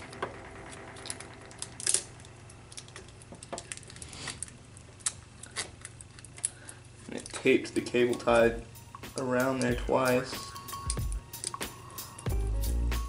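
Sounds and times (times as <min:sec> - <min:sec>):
hands clicking and scraping tape: 0:00.2 - 0:09.8.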